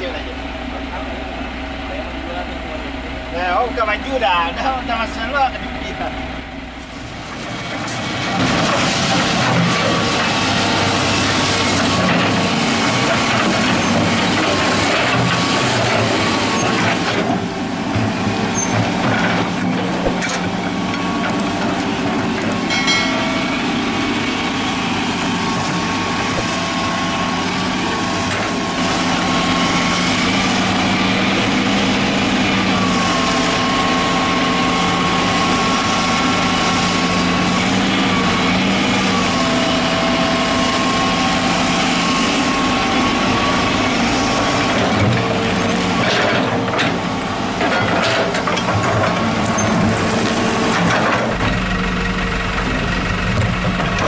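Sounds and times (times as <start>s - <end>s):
excavator diesel engine running: 25.7s - 54.0s.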